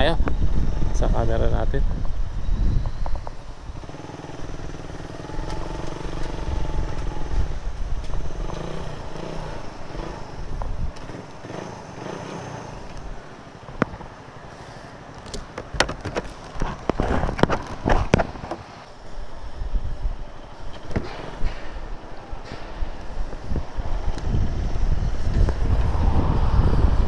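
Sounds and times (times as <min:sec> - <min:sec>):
motorcycle engines idling: 0:00.0 - 0:26.1.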